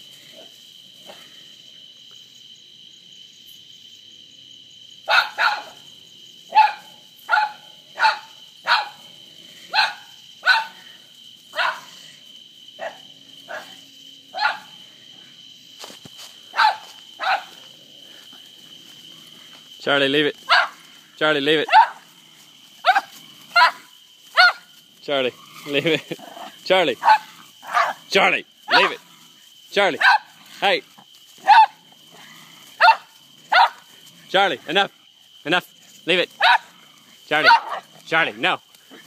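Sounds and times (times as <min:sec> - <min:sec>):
night insects chirping: 0:00.0 - 0:39.0
small dog barking: 0:05.1 - 0:05.8, 0:06.5 - 0:09.0, 0:09.7 - 0:10.8, 0:11.5 - 0:11.9, 0:12.8 - 0:14.7, 0:16.5 - 0:17.6, 0:20.5 - 0:20.8, 0:21.6 - 0:22.1, 0:22.8 - 0:24.7, 0:27.0 - 0:28.0, 0:28.7 - 0:29.0, 0:30.0 - 0:30.3, 0:31.4 - 0:31.8, 0:32.8 - 0:33.8, 0:36.4 - 0:36.7, 0:37.3 - 0:37.9.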